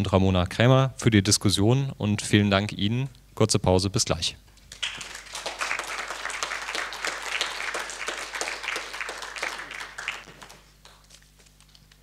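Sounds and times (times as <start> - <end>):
audience applauding: 4.7 - 11.3.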